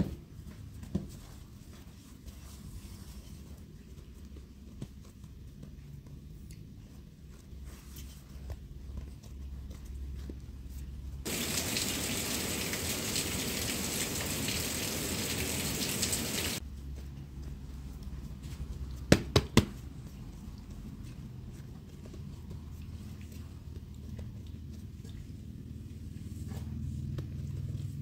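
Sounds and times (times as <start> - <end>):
water running: 11.2 - 16.6.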